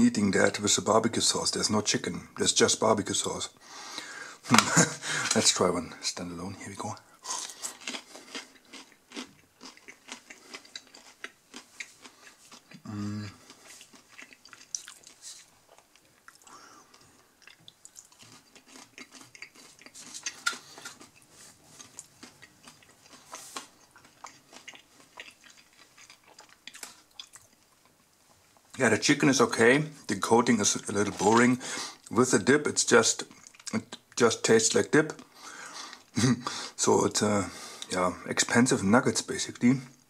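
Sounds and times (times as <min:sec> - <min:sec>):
crunchy chewing: 0:07.3 - 0:28.7
closed-mouth hum: 0:12.7 - 0:13.6.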